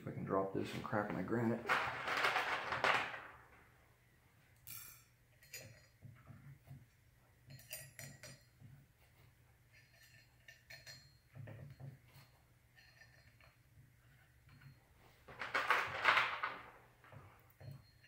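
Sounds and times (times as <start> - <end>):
small steel parts clinking: 4.6 - 6.4, 7.4 - 8.7, 9.6 - 18.0.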